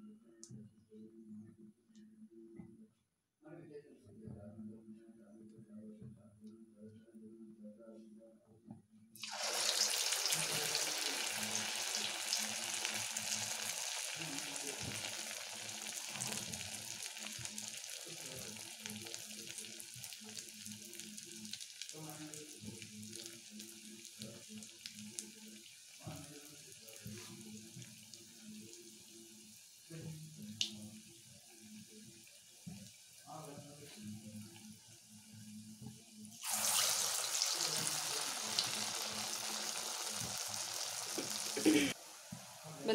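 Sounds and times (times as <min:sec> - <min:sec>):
batter sizzling in hot oil: 0:09.2 - 0:33.2, 0:36.4 - 0:42.9.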